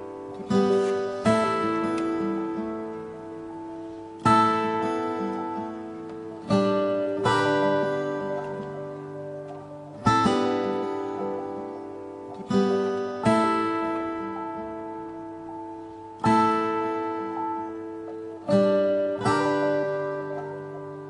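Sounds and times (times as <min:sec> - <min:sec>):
acoustic guitar strumming chords: 0:00.0 - 0:21.0.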